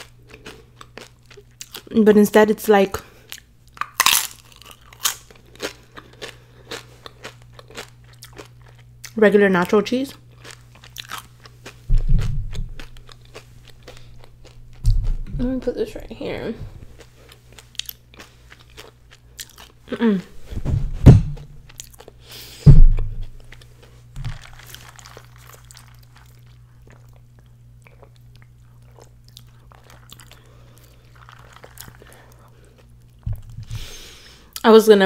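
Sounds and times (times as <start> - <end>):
chewing and mouth noises: 0.0 - 2.0, 3.0 - 15.3, 16.7 - 20.3, 21.6 - 22.4, 23.2 - 33.9
loud thumps: 11.9 - 12.8, 20.5 - 21.6, 22.6 - 23.3, 33.2 - 33.8.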